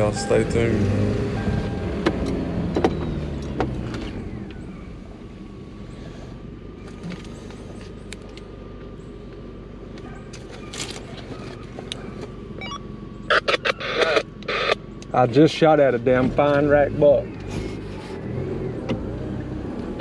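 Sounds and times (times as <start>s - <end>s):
truck engine and road noise: 0.0s - 20.0s.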